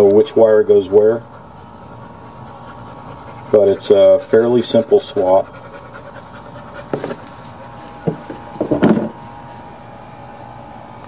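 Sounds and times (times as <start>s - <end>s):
faint steady hum: 0.0s - 11.0s
handling knocks and clunks: 6.9s - 7.4s, 8.0s - 9.2s.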